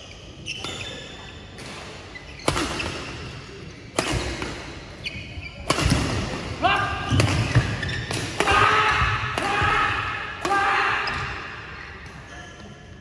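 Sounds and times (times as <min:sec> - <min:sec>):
shoes squeaking on court: 0:00.0 - 0:03.9, 0:04.8 - 0:05.8, 0:07.1 - 0:08.2
rackets hitting shuttlecock: 0:01.6 - 0:04.8, 0:05.6 - 0:06.5, 0:07.1 - 0:09.7.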